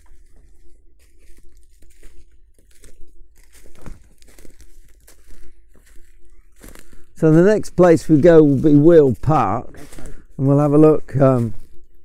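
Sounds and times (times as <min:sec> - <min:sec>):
footsteps through leaf litter: 0:00.0 - 0:12.0
jacket fabric brushing microphone: 0:07.2 - 0:11.8.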